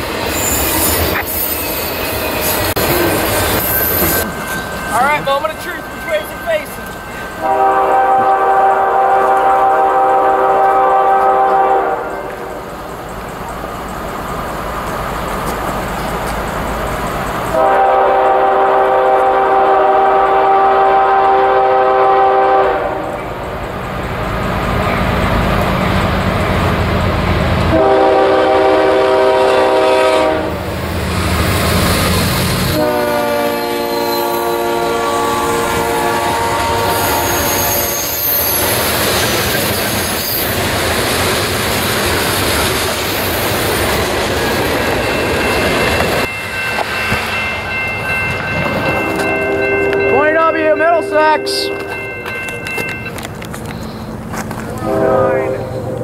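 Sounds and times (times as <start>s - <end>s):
train wheel noise: 0.0s - 56.0s
train air horn blasts: 7.4s - 12.6s, 17.5s - 23.2s, 27.7s - 30.6s, 32.7s - 38.8s, 49.0s - 50.4s, 51.0s - 52.0s, 54.8s - 55.9s.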